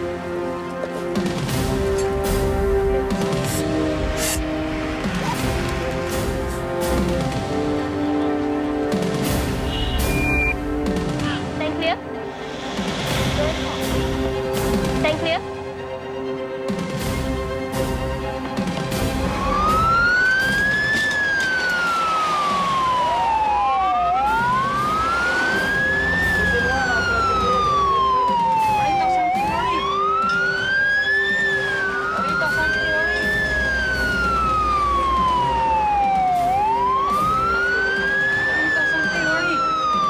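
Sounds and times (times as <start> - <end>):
ambulance siren wailing: 18.2 - 40.0.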